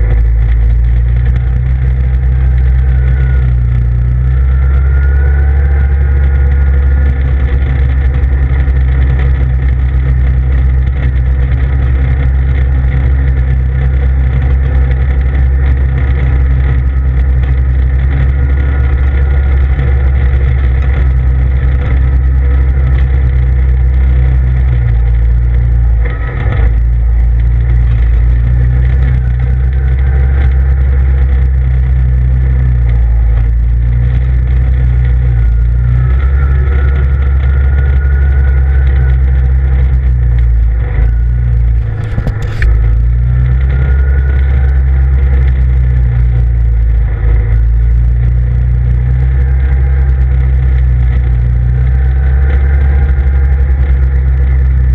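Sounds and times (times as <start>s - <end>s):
vehicle engine droning: 0.0s - 54.9s.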